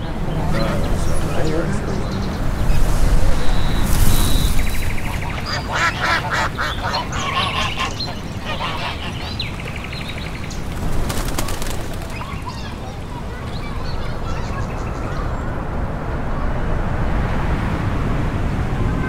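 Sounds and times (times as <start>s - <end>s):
waterfowl honking quacks: 5.1s - 9.6s.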